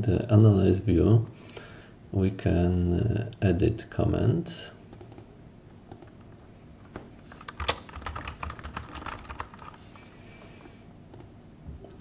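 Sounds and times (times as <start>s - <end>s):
computer keyboard typing: 4.9s - 5.3s, 5.9s - 6.2s, 7.3s - 9.8s.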